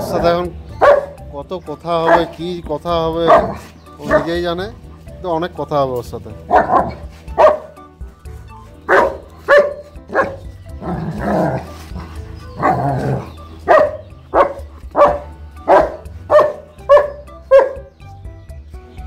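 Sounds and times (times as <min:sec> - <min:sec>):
dog barking: 0:00.0 - 0:01.2, 0:02.0 - 0:02.4, 0:03.2 - 0:04.4, 0:06.5 - 0:07.8, 0:08.9 - 0:10.5, 0:12.6 - 0:17.9.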